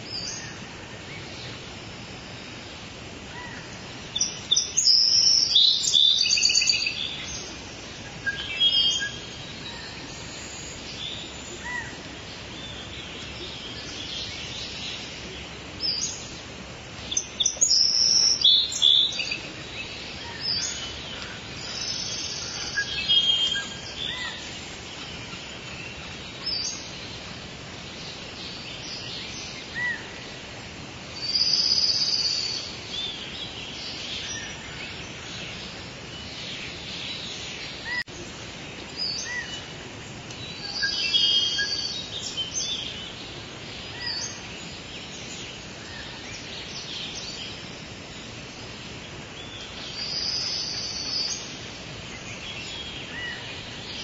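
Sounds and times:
forest background noise: 0.0 - 54.0
birds chirping and calling: 3.3 - 30.4, 31.2 - 54.0.

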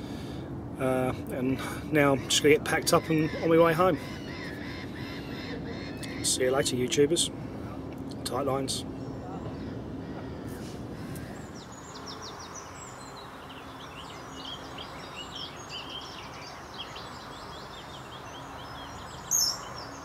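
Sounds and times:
steady outdoor hiss: 0.0 - 20.0
small birds chirping: 8.3 - 20.0.

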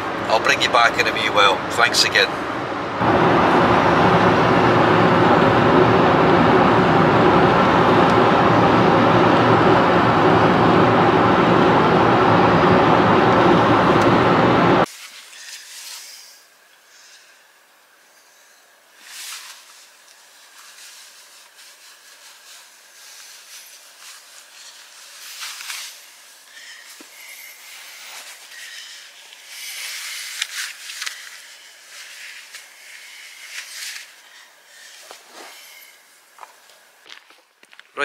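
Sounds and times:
clothing and boots rustling: 19.1 - 26.5, 30.1 - 37.8.

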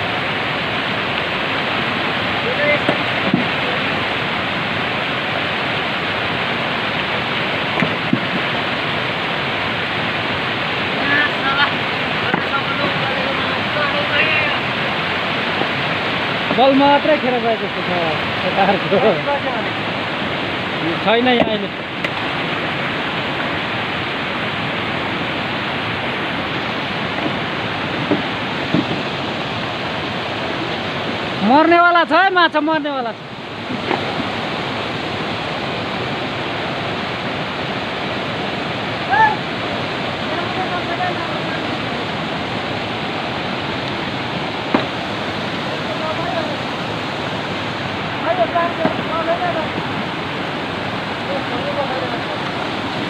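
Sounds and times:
mountain stream rushing over boulders: 0.0 - 53.0
soft knocks: 28.0 - 29.1.

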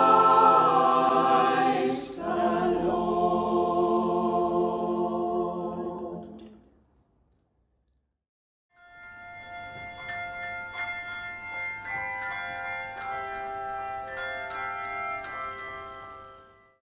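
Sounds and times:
chiming bell tune: 8.7 - 16.8.

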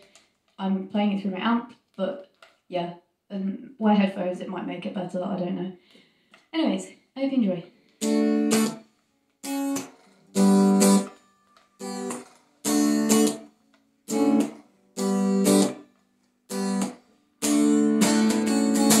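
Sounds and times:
electric guitar chords: 7.9 - 8.8, 9.4 - 15.9, 16.5 - 19.0.

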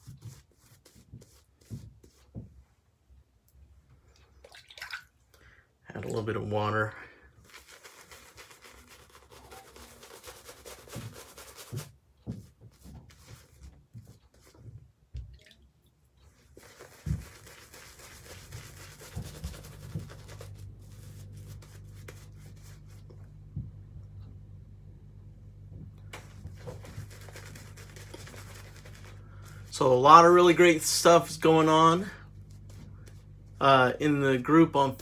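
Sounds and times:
shaving brush scrubbing lather: 7.4 - 11.9, 16.4 - 23.2, 26.1 - 35.0
steady low hum: 16.3 - 35.0.

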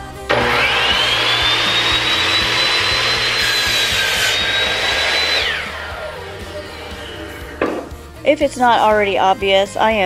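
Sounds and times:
miter saw cutting wood: 0.3 - 8.2.

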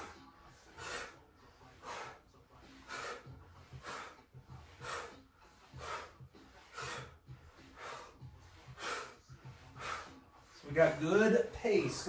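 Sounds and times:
hard rhythmic breathing: 0.0 - 12.0.

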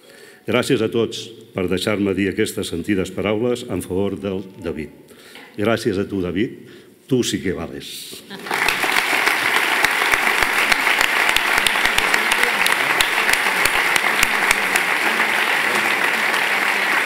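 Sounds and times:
audience applauding: 8.3 - 17.0.

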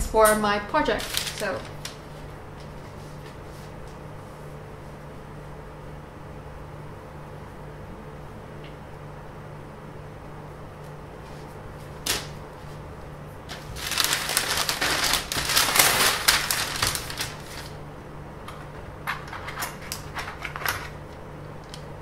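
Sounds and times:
low steady hum: 0.0 - 22.0
paper rustling and crinkling: 0.9 - 3.8, 11.3 - 12.8, 13.4 - 17.8.

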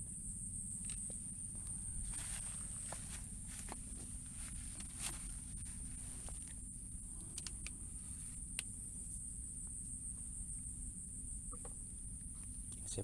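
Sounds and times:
low rumble: 0.0 - 8.4
high-pitched insect trill: 0.0 - 13.0
faint clicks: 7.2 - 7.8.

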